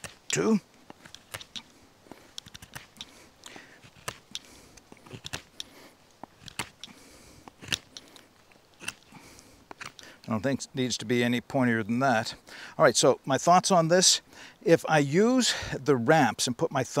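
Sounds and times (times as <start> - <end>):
knife carving wood: 0.0 - 10.3.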